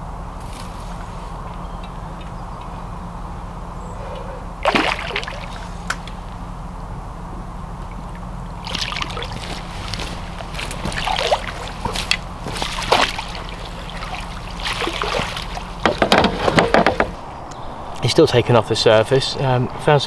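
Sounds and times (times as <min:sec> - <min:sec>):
fish splashing at water surface: 0:04.6 - 0:06.2, 0:08.6 - 0:16.6.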